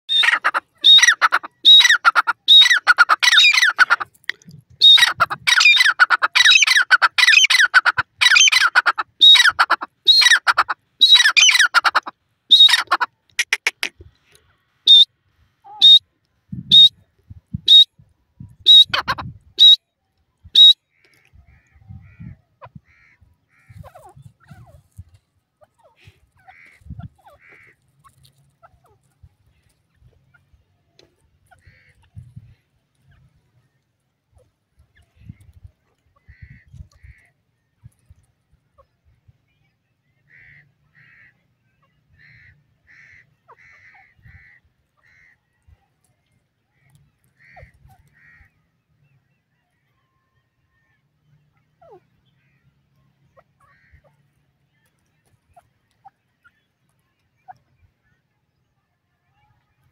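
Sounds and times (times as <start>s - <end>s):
francolin calling: 0.1s - 13.8s, 14.9s - 16.0s, 18.6s - 19.8s.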